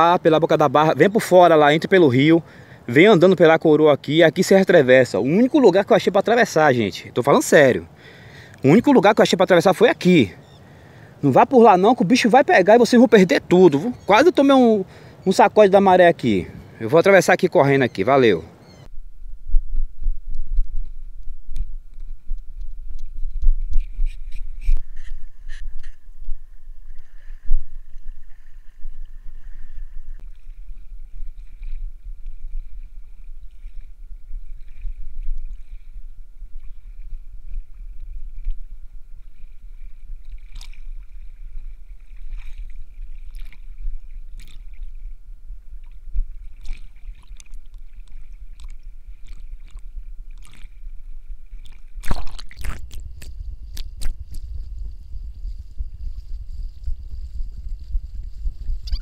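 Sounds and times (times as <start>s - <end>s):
steady low rumble: 18.8s - 59.0s
water sloshing and splashing: 21.6s - 59.0s.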